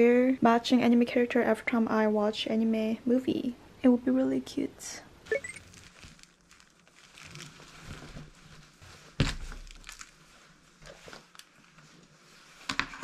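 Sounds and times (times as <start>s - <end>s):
fabric bag rustling and crumpling: 5.4s - 12.7s.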